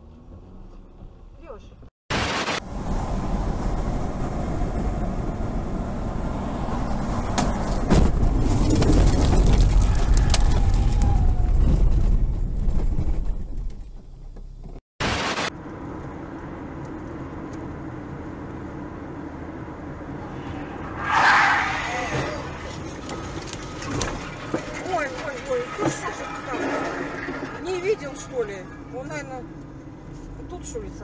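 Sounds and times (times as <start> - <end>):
car road and engine noise: 0.0 - 31.0
motorway road noise: 0.0 - 31.0
car knocking over rough ground: 7.3 - 14.8, 22.1 - 28.8.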